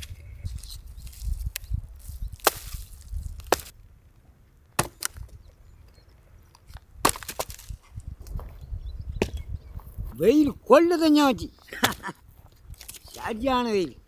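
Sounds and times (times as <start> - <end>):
axe chopping wood: 2.4 - 2.8, 3.4 - 3.7, 4.8 - 5.3, 7.0 - 7.8, 11.8 - 12.1.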